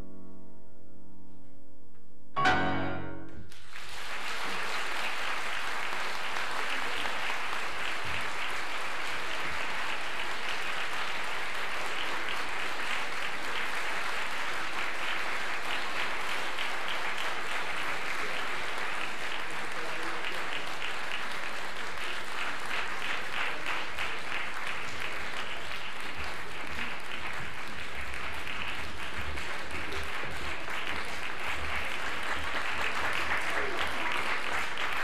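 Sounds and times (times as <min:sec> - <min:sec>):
piano chord: 0:02.4 - 0:03.6
audience applause: 0:03.5 - 0:35.0.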